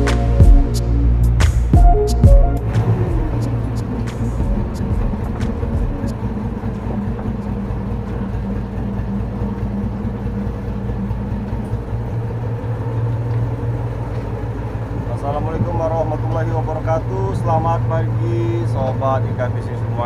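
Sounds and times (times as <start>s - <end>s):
boat engine running: 0.0s - 20.0s.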